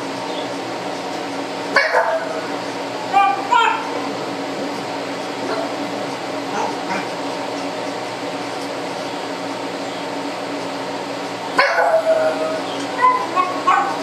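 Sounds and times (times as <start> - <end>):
exhaust fan humming: 0.0 - 14.0
dog barking: 1.8 - 2.5, 3.2 - 3.9, 11.6 - 14.0.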